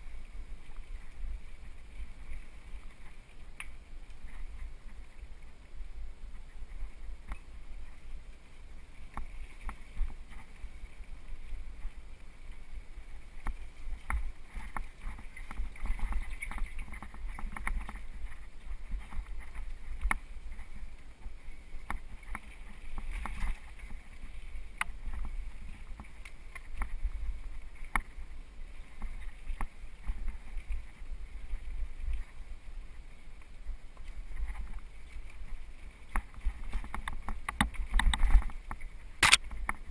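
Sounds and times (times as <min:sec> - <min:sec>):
bike clicking and rattling: 0:36.2 - 0:39.8.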